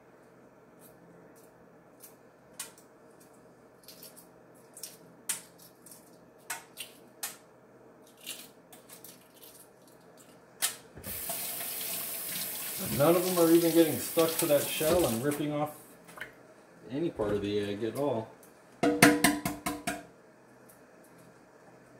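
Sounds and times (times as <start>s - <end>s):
faucet running into metal sink: 11.0s - 15.4s.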